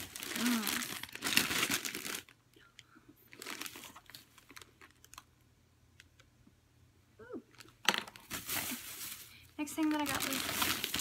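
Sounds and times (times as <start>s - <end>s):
plastic bag rustling: 0.0s - 2.4s, 3.3s - 5.2s, 7.6s - 11.0s.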